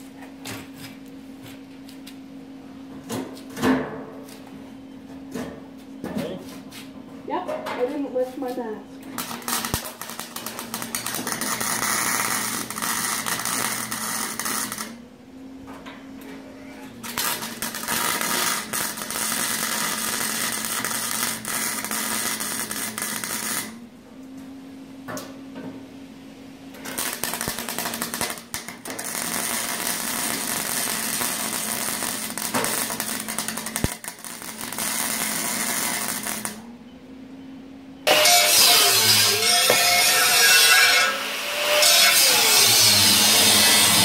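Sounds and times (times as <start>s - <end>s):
steady machine hum: 7.9s - 40.4s
arc torch cutting steel: 9.1s - 15.0s, 17.0s - 23.8s, 26.8s - 36.6s, 38.1s - 44.0s.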